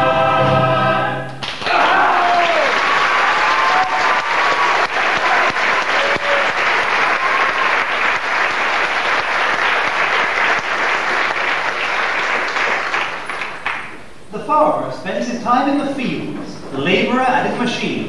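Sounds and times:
audience applauding: 1.4s - 14.0s.

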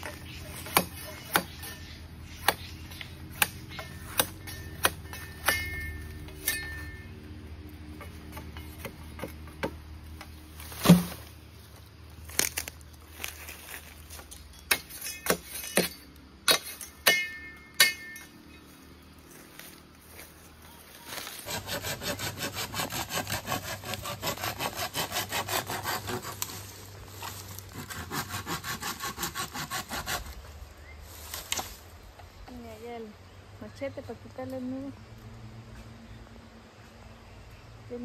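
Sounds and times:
sawing through bamboo: 0.0s - 7.1s, 21.0s - 30.5s
machete striking bamboo: 0.0s - 7.2s, 8.0s - 11.4s, 14.1s - 18.5s.

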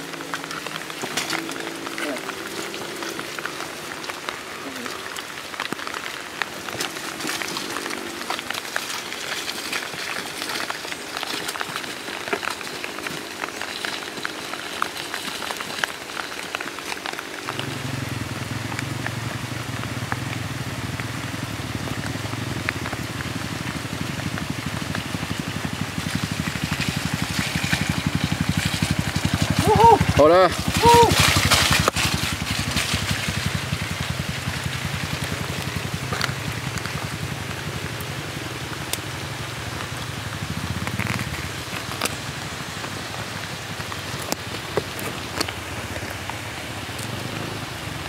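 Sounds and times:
rain pattering: 0.0s - 48.0s
dirt bike engine idling: 17.5s - 48.0s.

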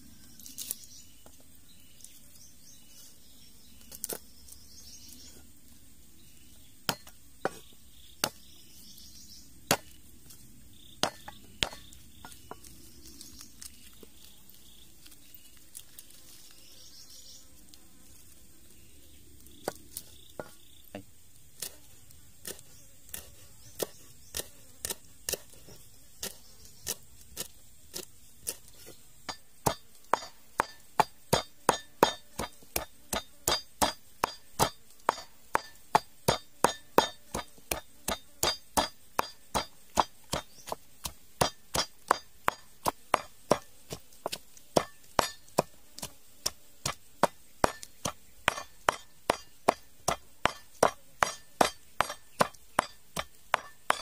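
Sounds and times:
knife chopping on wooden board: 11.0s - 11.9s, 29.3s - 54.0s
wooden pestle pounding in mortar: 11.0s - 11.9s, 29.2s - 54.0s.

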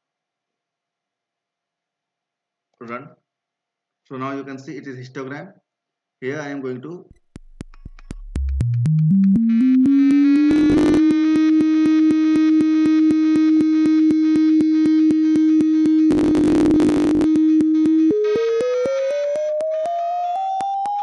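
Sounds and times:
regular clicks: 7.1s - 11.1s, 13.6s - 21.0s
sine tone gliding in pitch: 9.1s - 21.0s
crackly noise bursts: 10.5s - 11.1s, 15.6s - 18.3s.

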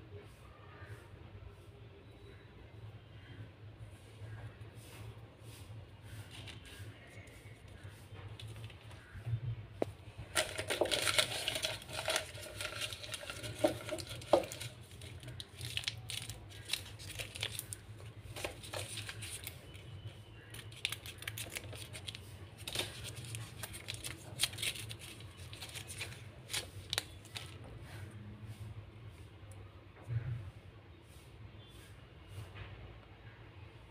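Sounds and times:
paper crinkling and rustling: 6.0s - 9.2s, 9.8s - 28.1s.

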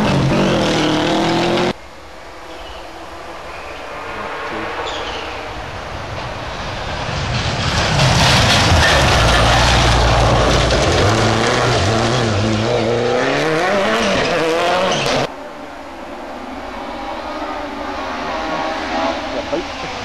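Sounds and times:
rally car engine revving: 0.0s - 1.8s, 6.7s - 15.3s, 16.8s - 20.0s.

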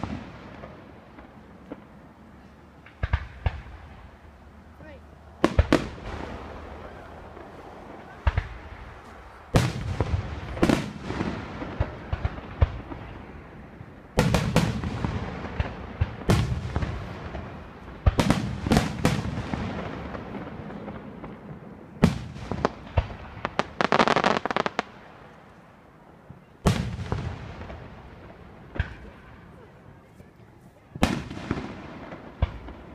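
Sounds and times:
firework crackling: 0.0s - 25.4s.

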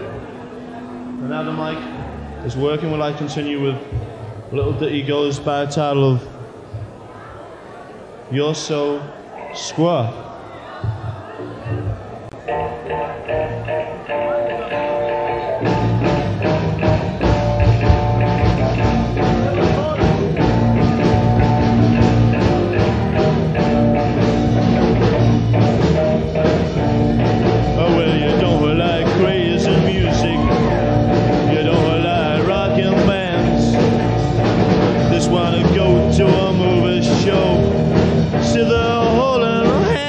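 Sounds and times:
rock and roll band playing live: 12.4s - 40.0s
solo electric guitar: 12.4s - 40.0s.

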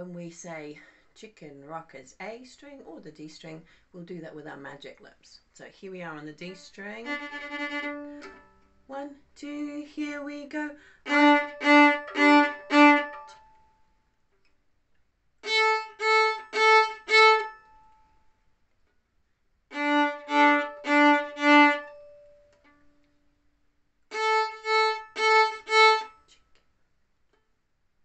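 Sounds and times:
violin short bowed notes: 6.5s - 8.6s, 11.1s - 13.6s, 19.7s - 22.7s.

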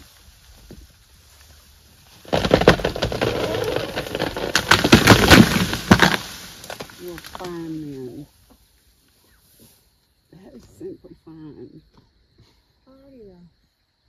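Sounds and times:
leaves rustling: 0.0s - 10.6s
wood cracking and snapping: 2.1s - 7.7s.

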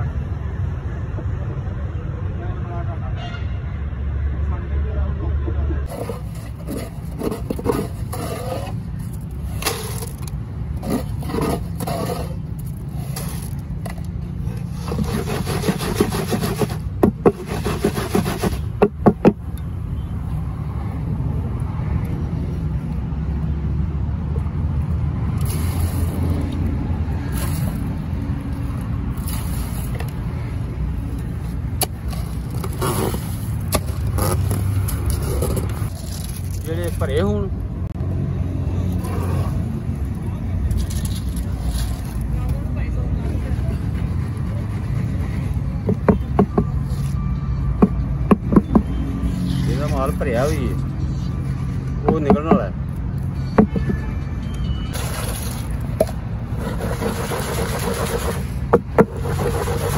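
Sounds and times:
concrete scraping in a plastic mould: 5.9s - 19.4s, 31.4s - 37.0s, 43.2s - 47.2s, 54.9s - 59.9s.

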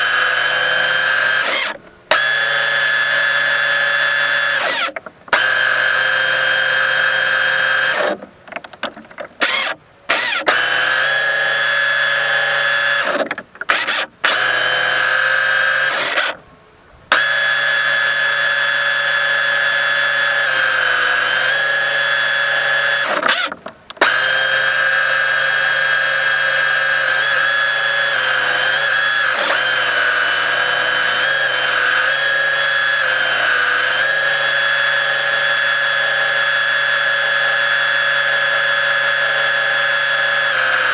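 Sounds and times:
small electric motor whining: 0.0s - 8.2s, 9.4s - 16.4s, 17.1s - 40.9s.

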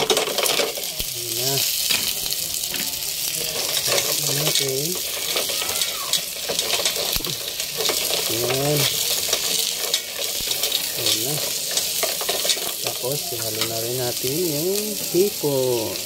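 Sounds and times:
frying hiss: 0.0s - 16.0s
shells clicking against pot: 3.5s - 13.0s.

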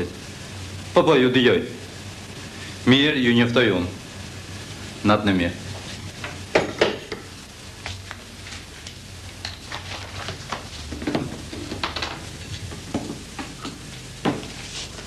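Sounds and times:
film soundtrack hum and crackle: 0.0s - 15.0s
papers and objects handled: 7.9s - 15.0s.

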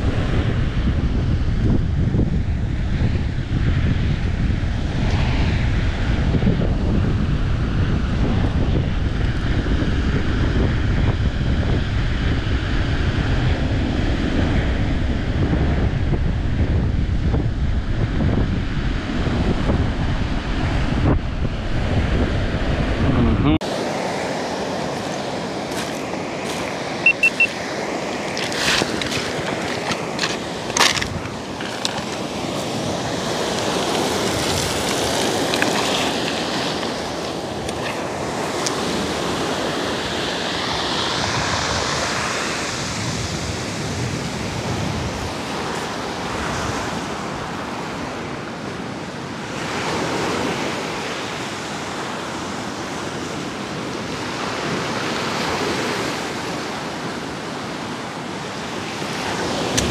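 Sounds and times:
surf washing up pebble beach: 23.6s - 59.9s.

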